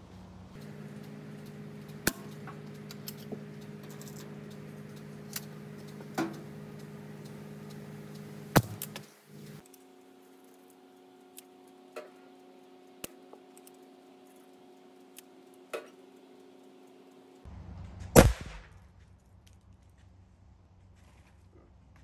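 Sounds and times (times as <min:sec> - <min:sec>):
explosive target bang: 0:18.1 - 0:18.7.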